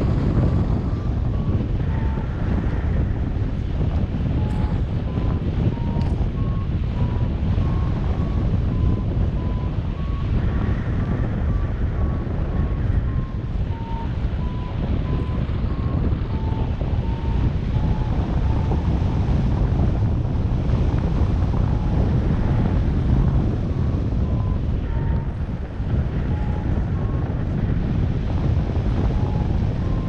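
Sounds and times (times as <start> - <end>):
wind rushing over microphone: 0.0 - 30.0
variometer beeping: 4.3 - 12.2, 13.0 - 19.2, 26.1 - 27.2.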